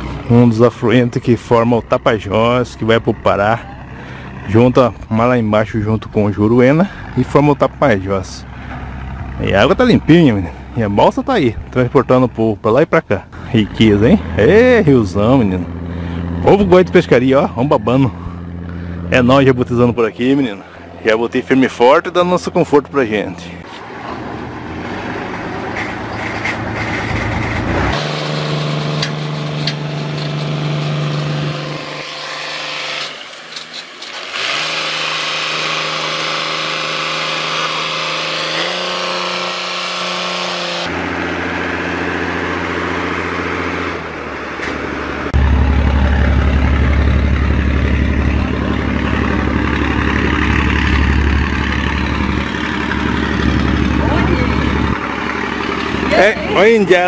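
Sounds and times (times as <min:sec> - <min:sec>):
engine running low hum: 0:00.0 - 0:57.0.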